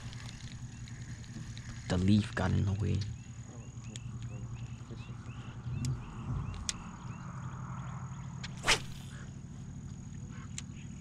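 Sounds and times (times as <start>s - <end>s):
wind rumble on microphone: 3.0s - 9.2s
fishing rod swishing: 8.5s - 9.2s.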